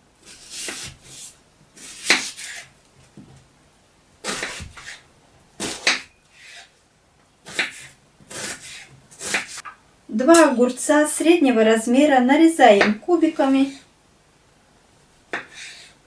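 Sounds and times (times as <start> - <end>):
knife slicing through onion: 0.2 - 2.7, 4.2 - 5.0, 5.6 - 6.7, 7.4 - 9.6, 15.3 - 16.0
knife striking wooden cutting board: 5.6 - 6.2.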